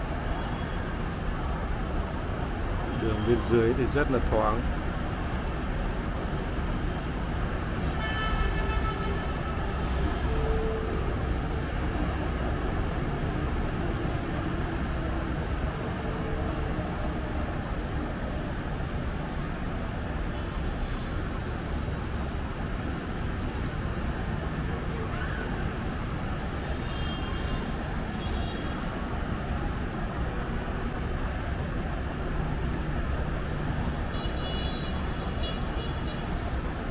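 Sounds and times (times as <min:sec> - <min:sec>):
city road traffic: 0:00.0 - 0:36.9
vehicle horn: 0:07.9 - 0:10.8.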